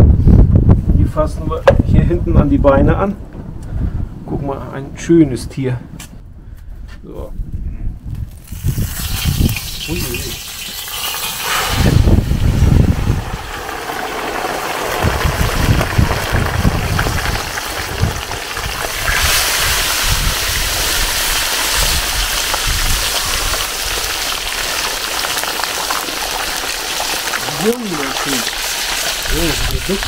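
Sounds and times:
oil sizzling in a wok: 0:08.4 - 0:29.9.

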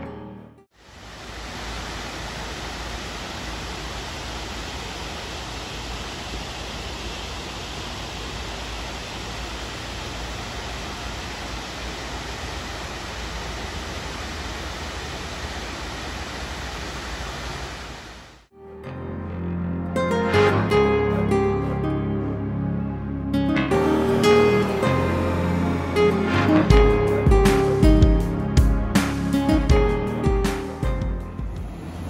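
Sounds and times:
music: 0:00.0 - 0:00.7, 0:18.5 - 0:31.8
water rushing over dam spillway: 0:00.8 - 0:18.4.

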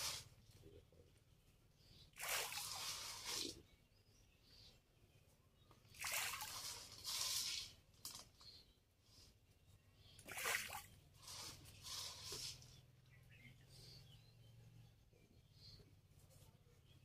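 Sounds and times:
water splashing: 0:02.2 - 0:03.6, 0:05.9 - 0:07.6, 0:10.2 - 0:12.4.

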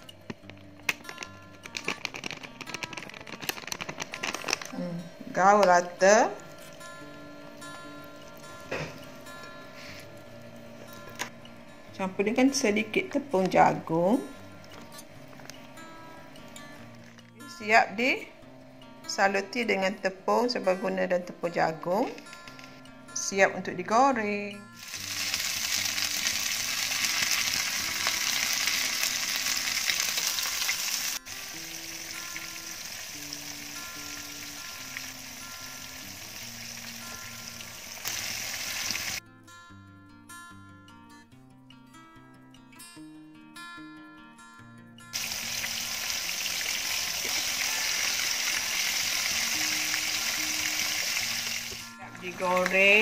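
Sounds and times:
soft background music: 0:00.0 - 0:53.0
chicken deep-frying in oil: 0:24.8 - 0:39.2, 0:45.2 - 0:51.8.

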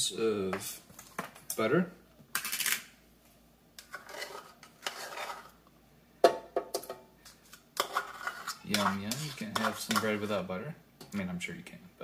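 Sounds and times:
utensil scraping a cup: 0:03.8 - 0:05.6, 0:07.8 - 0:10.3.

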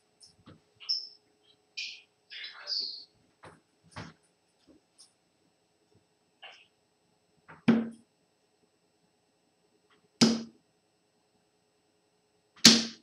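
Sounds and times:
darts thudding into dartboard: 0:07.5 - 0:08.0, 0:10.2 - 0:10.5, 0:12.6 - 0:13.0.

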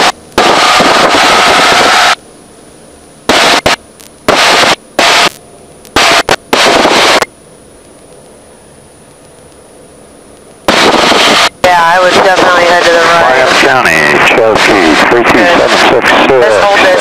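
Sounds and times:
engine and wind noise over intercom: 0:00.0 - 0:17.0
faint high steady tone: 0:07.2 - 0:10.4.

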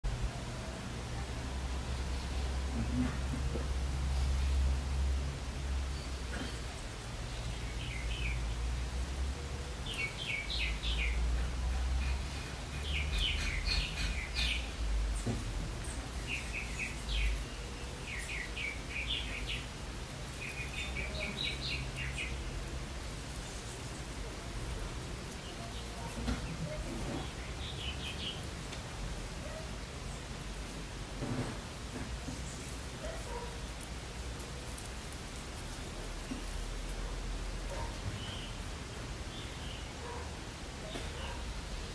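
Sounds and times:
small birds chirping: 0:00.3 - 0:41.9.

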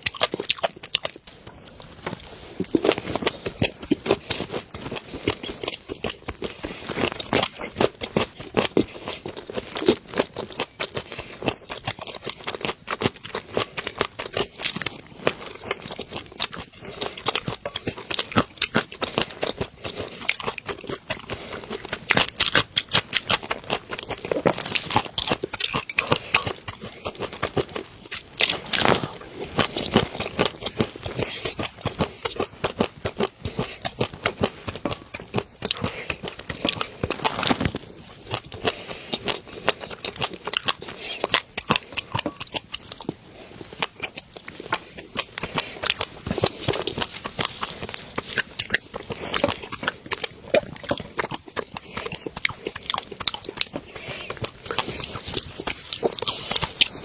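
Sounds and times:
chewing clicks: 0:38.3 - 0:57.0.

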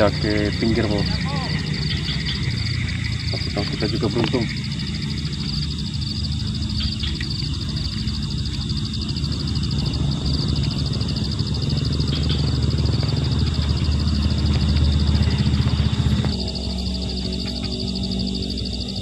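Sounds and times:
insects trilling: 0:00.0 - 0:19.0
low rushing rumble: 0:00.0 - 0:19.0.

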